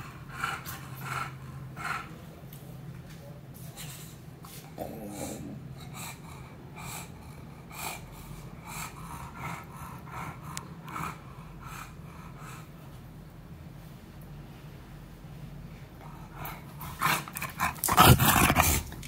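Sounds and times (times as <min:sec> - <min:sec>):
dog panting: 0:00.0 - 0:02.3, 0:03.8 - 0:13.0, 0:16.0 - 0:19.0
steady low hum: 0:00.0 - 0:19.0.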